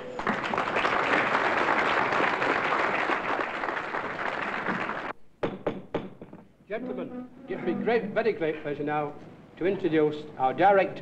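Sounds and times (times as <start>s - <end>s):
audience clapping: 0.0s - 5.2s.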